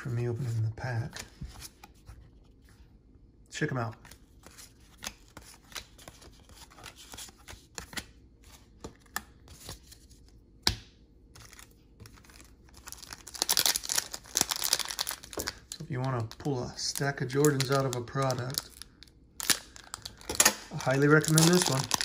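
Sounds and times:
cards rustling: 3.8 - 10.4, 11.2 - 22.0.

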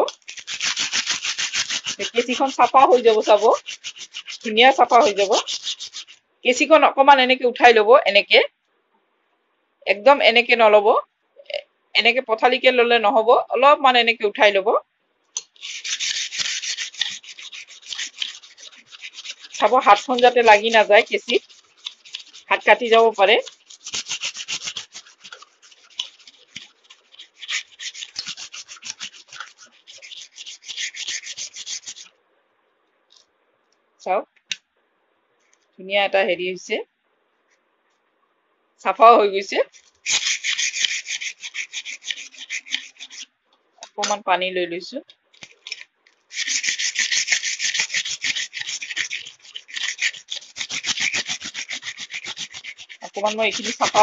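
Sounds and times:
sharpening stone scraping scissor blade: 0.0 - 6.2, 15.4 - 32.1, 39.6 - 44.2, 45.4 - 54.0.

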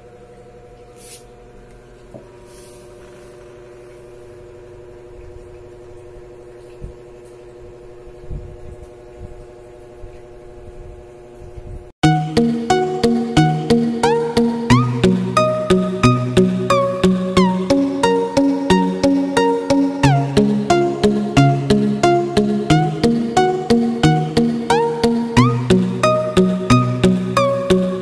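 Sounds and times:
hum of held tones: 0.0 - 28.0
music: 12.0 - 28.0.

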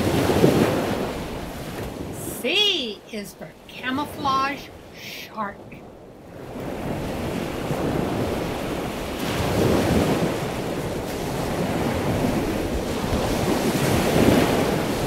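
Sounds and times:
ocean surf rushing: 0.0 - 15.0.

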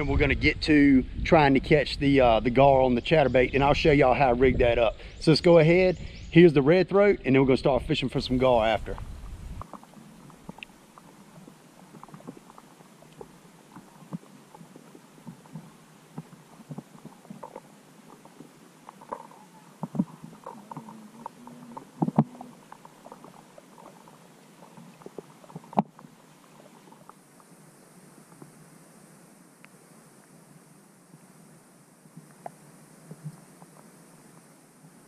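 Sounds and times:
faint underwater gurgling: 0.9 - 35.0
small underwater clicks and pops: 8.8 - 27.6, 28.2 - 28.6, 32.1 - 34.5.

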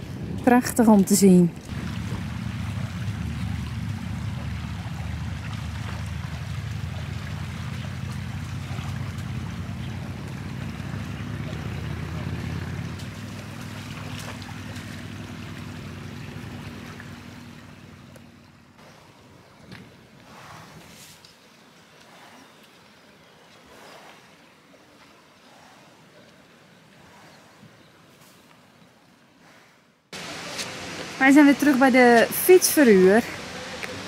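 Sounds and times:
wind rumble on microphone: 0.0 - 17.8
shallow river flowing over gravel: 0.0 - 34.0.

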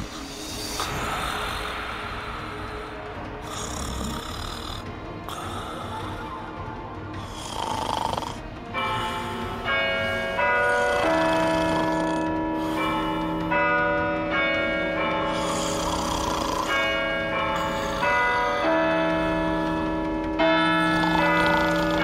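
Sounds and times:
person snoring: 0.0 - 6.6, 7.2 - 13.5, 15.3 - 19.9, 20.6 - 22.0
chiming clock bells: 8.7 - 22.0.

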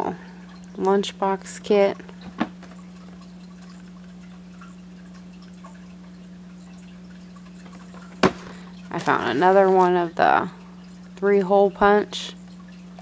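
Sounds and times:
steady low hum: 0.0 - 13.0
cardboard box knock: 8.2 - 8.5.

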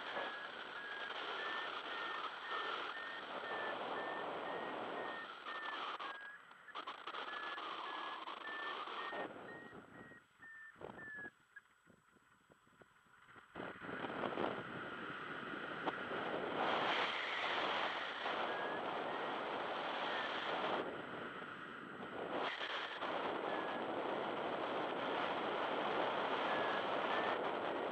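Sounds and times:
wind rushing over microphone: 0.0 - 10.2, 12.5 - 27.9
variometer beeping high tones: 0.3 - 11.3.

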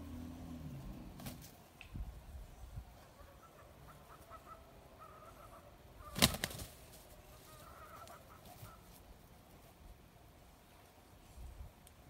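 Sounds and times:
faint chicken calls: 2.5 - 9.3
rooster flapping wings: 6.0 - 7.1.

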